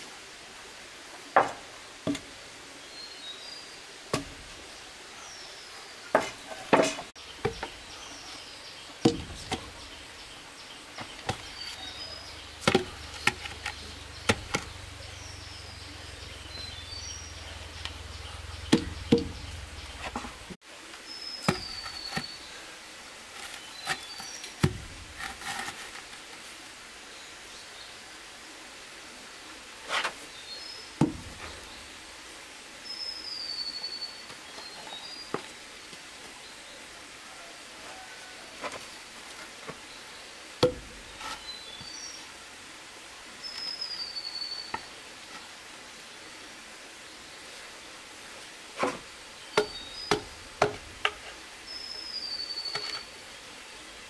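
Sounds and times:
wooden poles knocking: 0:01.4 - 0:02.3, 0:06.2 - 0:07.8, 0:09.0 - 0:10.0, 0:12.5 - 0:14.9, 0:17.8 - 0:20.4, 0:24.6 - 0:25.2, 0:31.0 - 0:31.6, 0:40.6 - 0:41.0, 0:49.6 - 0:51.2
birds chirping: 0:02.8 - 0:22.7, 0:49.3 - 0:54.0.

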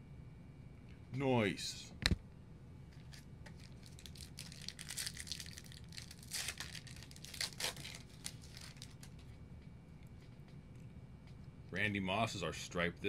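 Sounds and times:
plastic wrapper tearing and crinkling: 0:03.0 - 0:09.2.

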